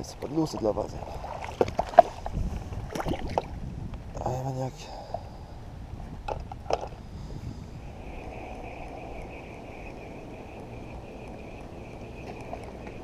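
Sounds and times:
fishing reel whining: 7.1s - 13.0s.

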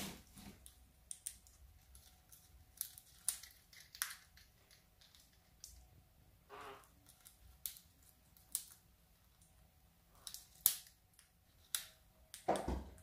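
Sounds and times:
parrot beak crunching wicker: 0.5s - 5.8s.

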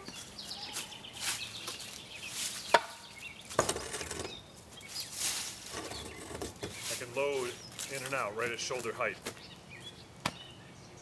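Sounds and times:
footsteps on dry leaves: 0.0s - 3.6s, 4.4s - 9.6s.

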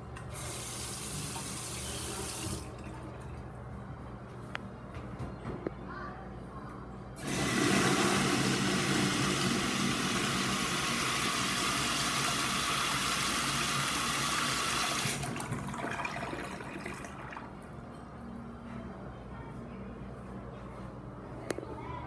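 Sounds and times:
urinal flushing: 0.3s - 3.5s, 7.2s - 17.7s.

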